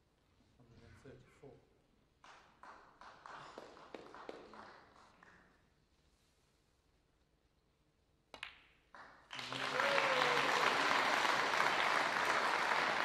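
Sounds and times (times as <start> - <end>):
audience applause: 9.3 - 13.0.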